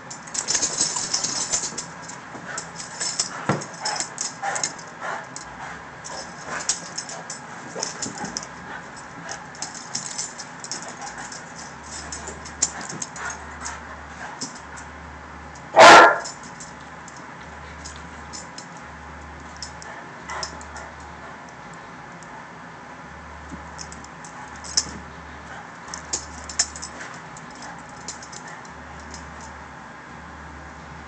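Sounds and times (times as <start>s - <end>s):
dogs scuffling: 0.0s - 5.4s, 6.0s - 14.8s
dog barking loudly: 15.7s - 16.4s.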